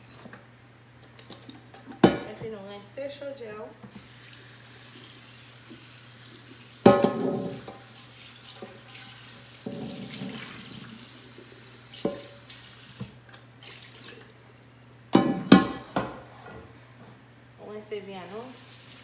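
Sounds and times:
faucet running into pot: 0:03.9 - 0:14.9
hand scrubbing pot: 0:04.0 - 0:12.9
pot clanking against steel sink: 0:06.8 - 0:07.9, 0:09.6 - 0:10.7, 0:12.0 - 0:12.4, 0:15.1 - 0:16.3.

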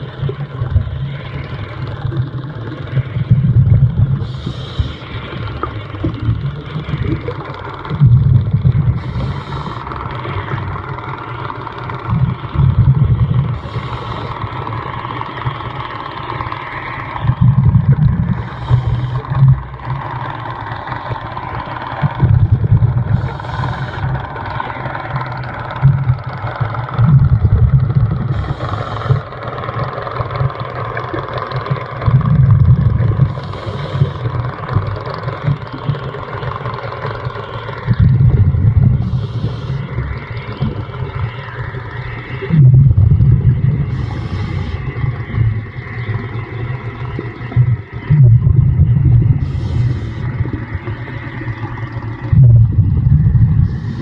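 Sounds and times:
bubbling rumble of exhaled bubbles: 0:00.0 - 0:54.0
underwater drone: 0:00.0 - 0:54.0
regulator inhalation hiss: 0:04.2 - 0:05.6, 0:09.0 - 0:10.5, 0:13.6 - 0:14.8, 0:18.3 - 0:20.1, 0:23.1 - 0:24.6, 0:28.2 - 0:29.2, 0:33.3 - 0:34.4, 0:39.0 - 0:40.6, 0:43.8 - 0:45.3, 0:49.4 - 0:51.3, 0:53.6 - 0:54.0.

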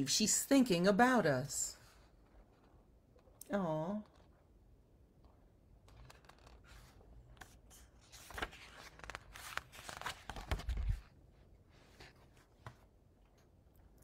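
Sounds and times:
book pages rustling: 0:05.8 - 0:13.0.

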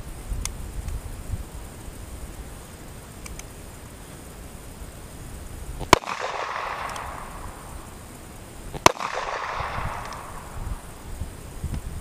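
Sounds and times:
gunshot echo: 0:05.8 - 0:07.9, 0:08.8 - 0:10.8
revolver gunshots: 0:05.9 - 0:08.0, 0:08.7 - 0:10.9.

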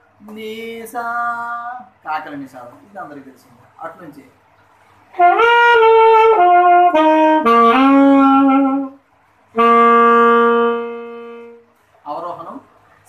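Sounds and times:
alto saxophone playing: 0:05.1 - 0:11.8.

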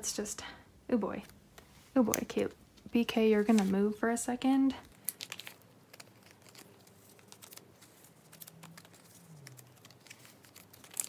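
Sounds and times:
photocards rustling and clicking: 0:04.8 - 0:11.0.

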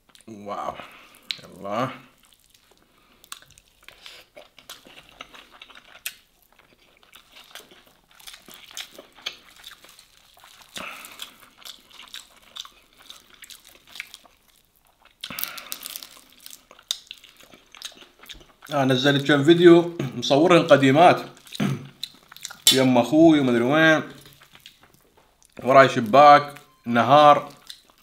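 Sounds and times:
crunching: 0:02.2 - 0:18.7
wet chewing with lip smacks: 0:02.2 - 0:18.7, 0:21.4 - 0:22.7, 0:24.2 - 0:25.6, 0:27.5 - 0:28.0.

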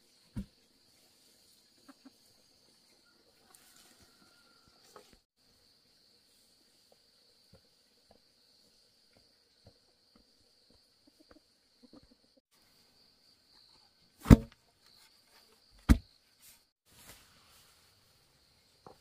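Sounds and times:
loud thumps: 0:14.2 - 0:14.5.

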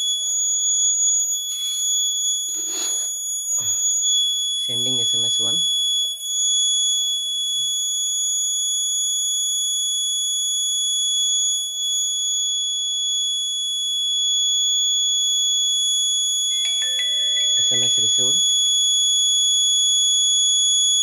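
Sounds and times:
high-pitched alarm buzzer tone: 0:00.0 - 0:09.3, 0:16.2 - 0:19.4.

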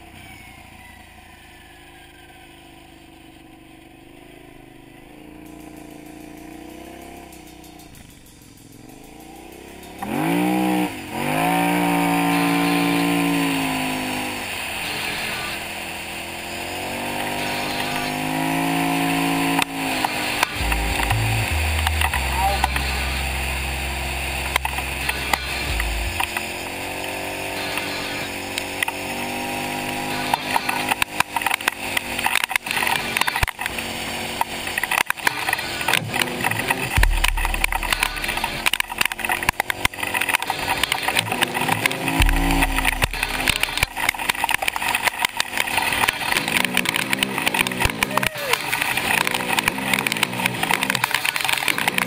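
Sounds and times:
atv engine running: 0:00.0 - 0:52.0
knocks and rattles: 0:34.9 - 0:48.0.

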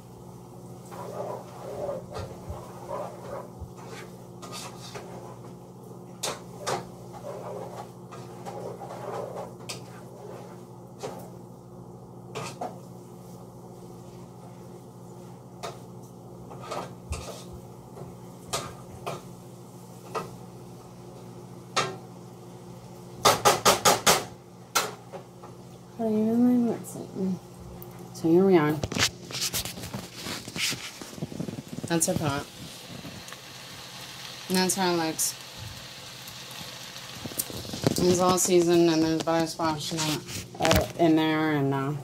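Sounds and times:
spoon scraping a pot: 0:00.9 - 0:05.4, 0:06.2 - 0:10.6.

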